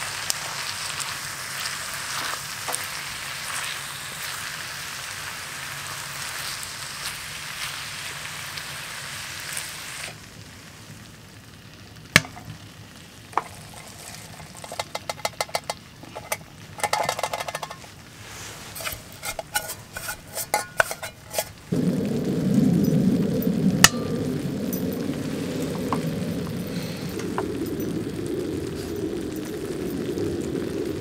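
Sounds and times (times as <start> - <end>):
food sizzling in a skillet: 0.0 - 31.0
wooden spatula scraping a pan: 13.4 - 21.7
low rushing noise: 21.5 - 31.0.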